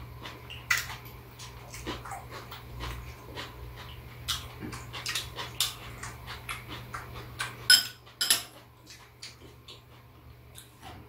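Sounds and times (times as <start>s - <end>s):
utensils clinking against dishes: 7.7s - 8.6s.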